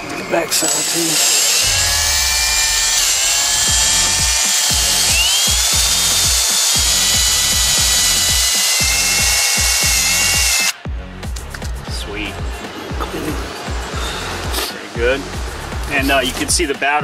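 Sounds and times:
cordless drill motor whine: 0.0s - 10.8s.

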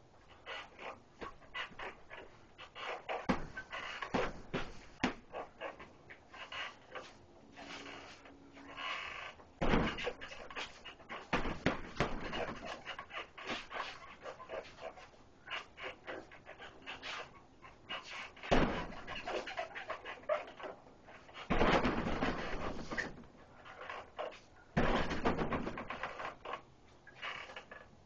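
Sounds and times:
punches thudding on heavy bag: 3.3s - 5.3s, 9.6s - 10.7s, 11.3s - 12.9s, 18.4s - 19.5s, 21.5s - 23.2s, 24.8s - 26.0s.

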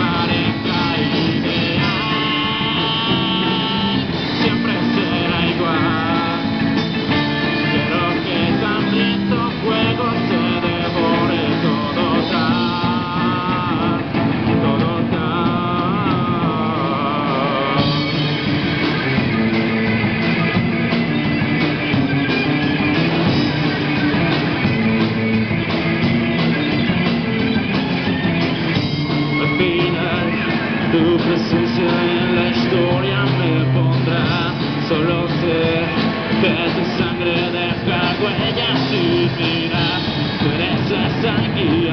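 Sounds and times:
man singing into a microphone: 0.0s - 18.4s, 29.3s - 41.9s
drum kit: 0.0s - 41.9s
electric guitars: 0.0s - 41.9s.

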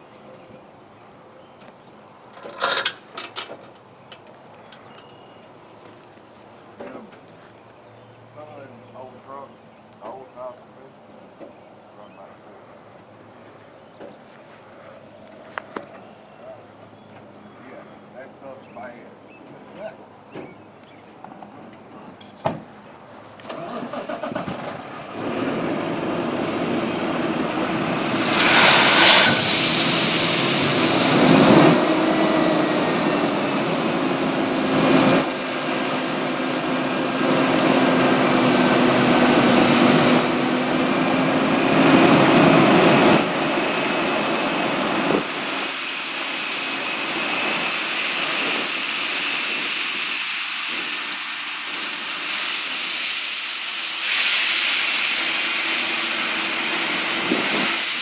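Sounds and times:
diesel engine revving: 23.5s - 53.2s
loud hiss: 26.4s - 58.0s.

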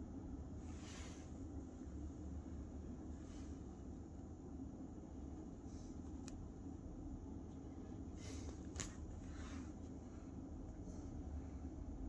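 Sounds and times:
muffled city traffic hum: 0.0s - 12.0s
soft hiss: 0.3s - 4.4s.

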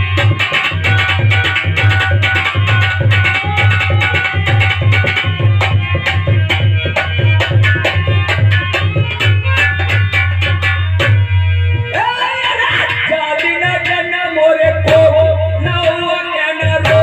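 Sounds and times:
hand drum rhythm: 0.0s - 11.3s, 14.9s - 17.0s.

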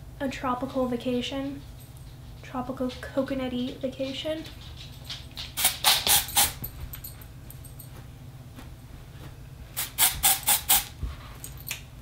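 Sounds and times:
aerosol spray hissing spurts: 5.6s - 6.6s, 9.8s - 10.9s.

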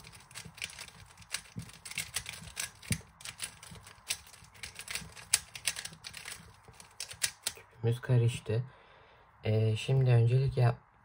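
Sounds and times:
puzzle cube clicking as twisted: 0.0s - 7.6s.

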